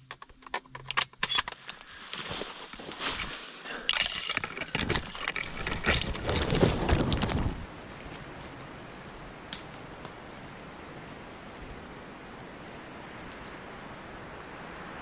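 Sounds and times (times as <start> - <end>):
faint hiss of woods: 1.3 - 4.7, 7.4 - 15.0
branches swishing and twigs crackling: 1.8 - 11.3.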